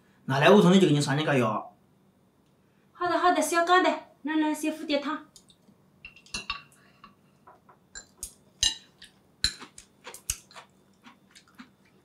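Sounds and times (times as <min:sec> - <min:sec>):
chopsticks and spoons clinking bowls: 0:06.0 - 0:07.2, 0:08.0 - 0:10.6.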